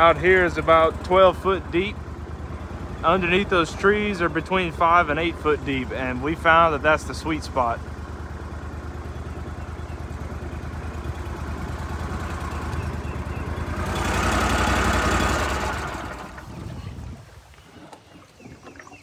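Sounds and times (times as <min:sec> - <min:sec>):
boat motor running: 0:00.0 - 0:19.0.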